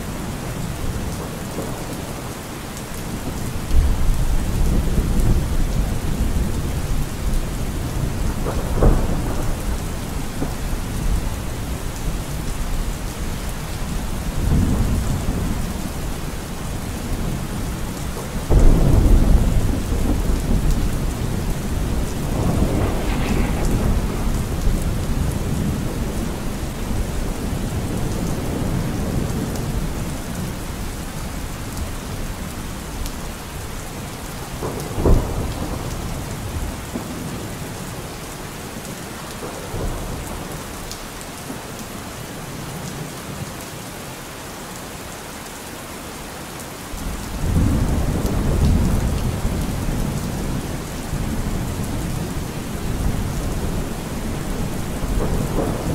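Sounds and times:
steady rain: 0:00.0 - 0:55.9
rolling thunder: 0:03.2 - 0:38.0, 0:47.0 - 0:55.9
sharp thunder crack: 0:18.5 - 0:28.7.

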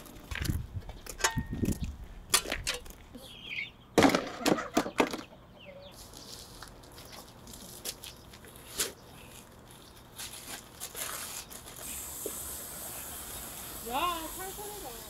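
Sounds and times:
paper bag rustling and crinkling: 0:06.0 - 0:12.2
water spraying from a hose: 0:11.7 - 0:15.0.

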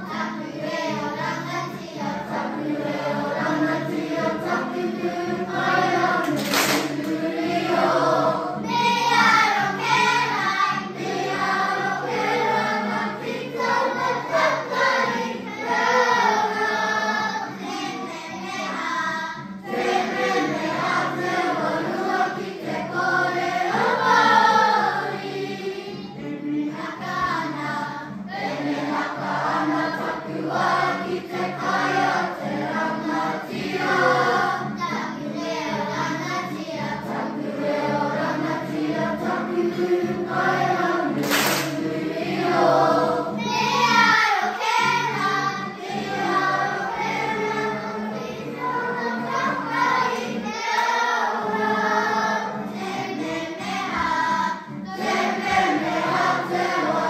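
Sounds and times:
children singing in unison: 0:00.0 - 0:57.0.

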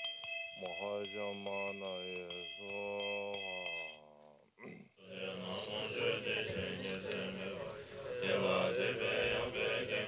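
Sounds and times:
bell ringing: 0:00.0 - 0:04.0
voices chanting: 0:00.6 - 0:10.0.

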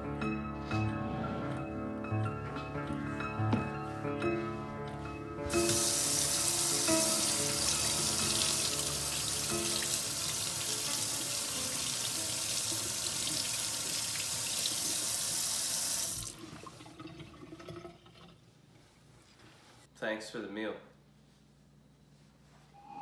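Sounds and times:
faucet running into sink: 0:05.5 - 0:18.4.

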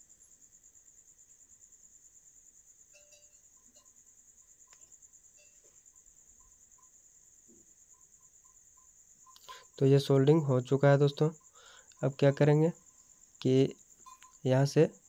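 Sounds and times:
faint high-pitched whine: 0:00.0 - 0:15.0.

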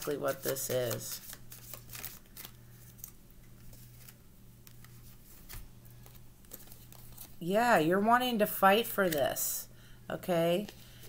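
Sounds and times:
cards being shuffled: 0:00.0 - 0:07.4, 0:08.8 - 0:09.4.

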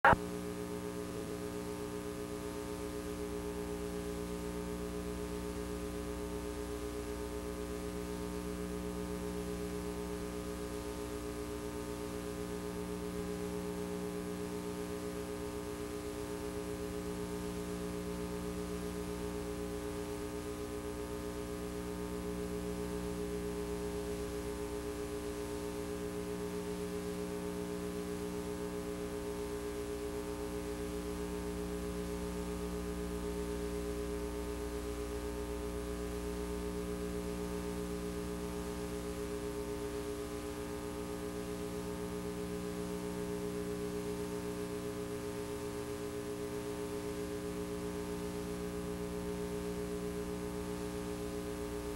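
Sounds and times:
tape hiss: 0:00.0 - 0:00.4
electrical hum and buzz: 0:00.0 - 0:51.9.

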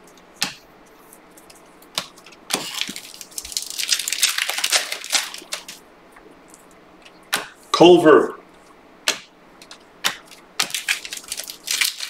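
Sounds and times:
card packaging crinkling: 0:01.0 - 0:05.8, 0:10.2 - 0:12.0.

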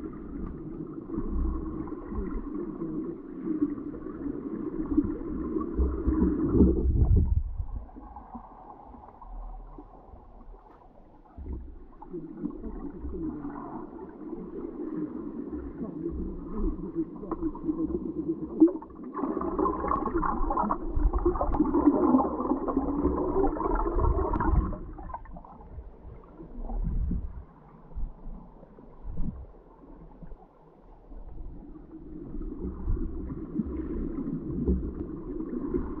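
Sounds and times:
underwater water rushing: 0:00.0 - 0:36.0
low underwater thumps: 0:05.8 - 0:12.1, 0:22.5 - 0:28.4.

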